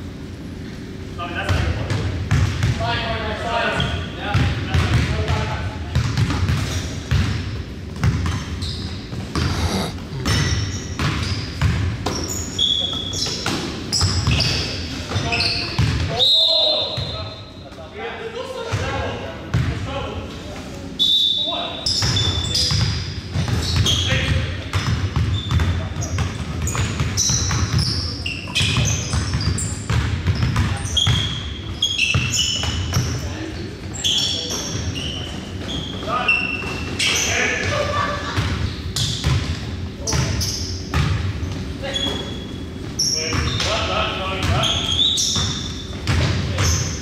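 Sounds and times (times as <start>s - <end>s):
sneakers squeaking on court: 8.0s - 14.7s, 24.7s - 33.1s, 44.4s - 47.0s.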